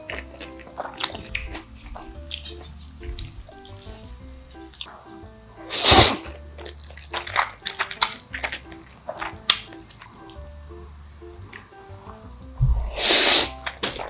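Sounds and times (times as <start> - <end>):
chewing and chopstick clicks: 0.0 - 5.2, 5.8 - 10.5
soft background music: 0.0 - 14.0
loud noodle slurp: 5.7 - 10.2, 12.8 - 13.7.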